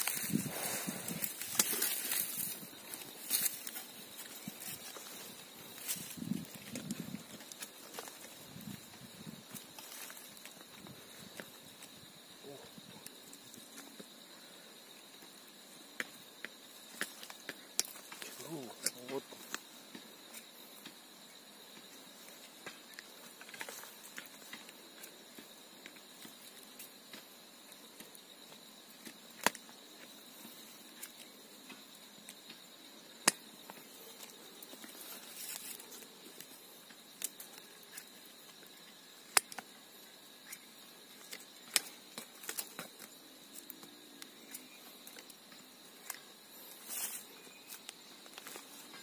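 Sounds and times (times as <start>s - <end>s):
insect trill: 0.0s - 49.0s
scraping and picking in soil: 40.4s - 49.0s.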